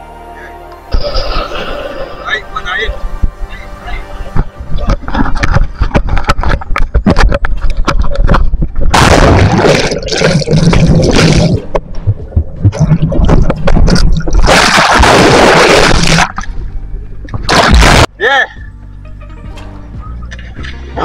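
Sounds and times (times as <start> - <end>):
water splashing and gurgling: 4.8 - 18.1.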